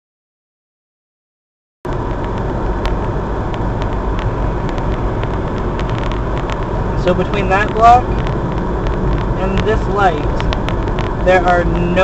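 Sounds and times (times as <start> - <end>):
light ticks: 1.9 - 11.9
road and engine rumble: 1.9 - 12.0
tyres on snowy road: 1.9 - 12.0.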